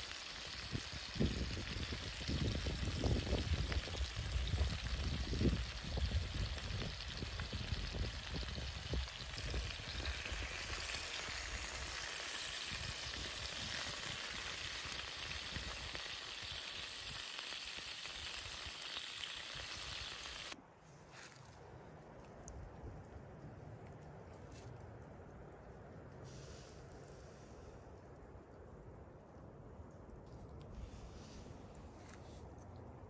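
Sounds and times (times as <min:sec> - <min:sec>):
fat sizzling in a skillet: 0:00.0 - 0:20.6.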